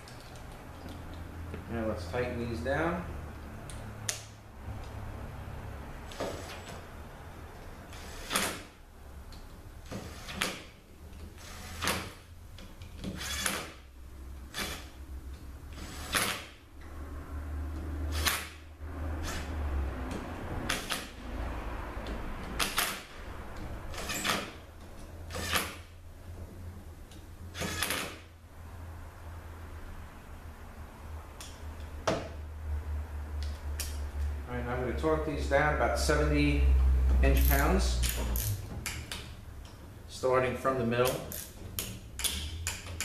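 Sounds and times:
hand ratchet clicking: 37.3 - 39.8, 41.0 - 43.0.

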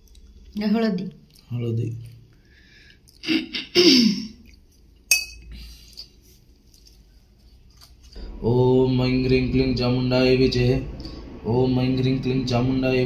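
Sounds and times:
metal bowl clinking: 5.1 - 5.5.

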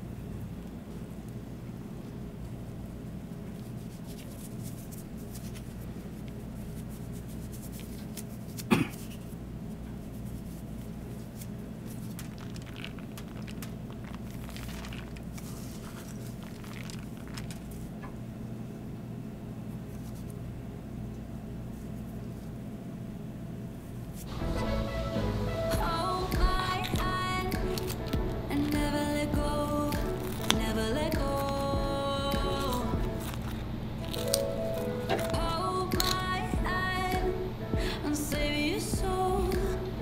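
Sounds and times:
low machine hum: 0.0 - 40.0.

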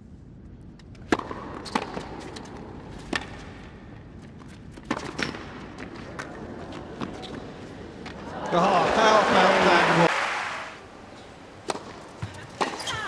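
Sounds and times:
low arena hum: 0.0 - 12.9
tennis racquet strikes: 1.0 - 3.7, 11.6 - 12.9
tennis ball bouncing: 1.0 - 7.4, 11.6 - 13.0.

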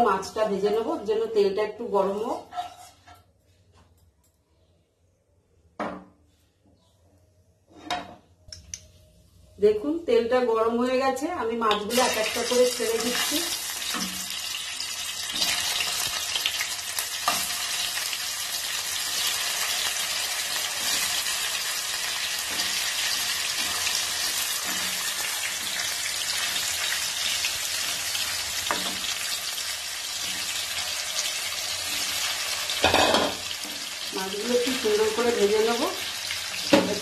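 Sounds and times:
fish frying in hot oil: 11.9 - 37.0.

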